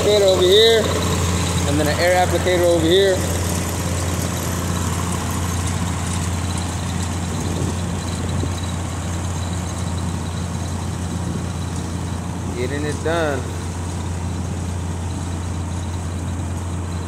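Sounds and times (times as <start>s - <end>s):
engines droning with hiss: 0.0s - 17.0s.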